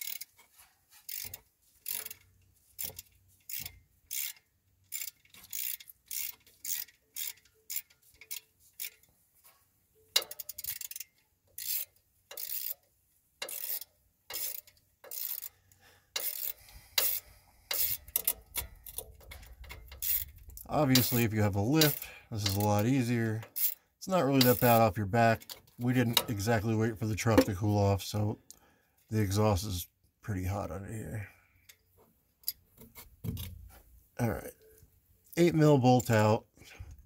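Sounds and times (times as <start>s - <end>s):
hand ratchet clicking: 0.0s - 9.1s, 10.1s - 23.8s, 24.4s - 26.4s.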